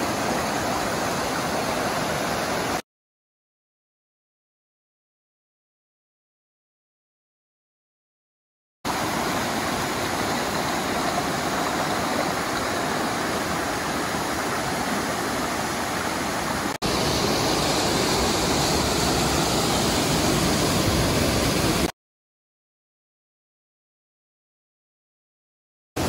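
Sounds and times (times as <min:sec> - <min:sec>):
waterfall rushing: 0:00.0 - 0:02.8, 0:08.9 - 0:21.9.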